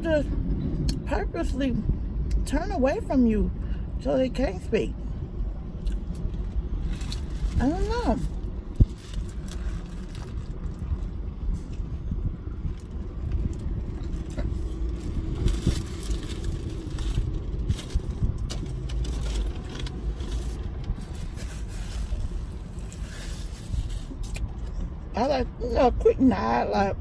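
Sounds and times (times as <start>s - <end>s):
car cabin rumble: 0.0s - 27.0s
paper wrapper rustling: 14.0s - 24.5s.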